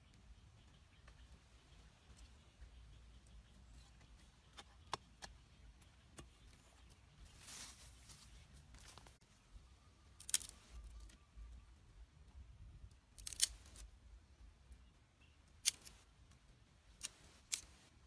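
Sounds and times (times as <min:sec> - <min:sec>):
dry twigs snapping: 0:10.2 - 0:11.2, 0:13.1 - 0:13.9.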